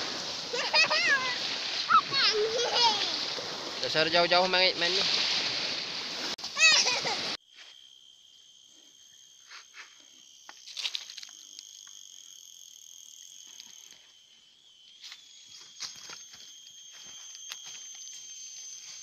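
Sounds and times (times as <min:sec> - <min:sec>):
insects trilling: 0:00.0 - 0:19.0.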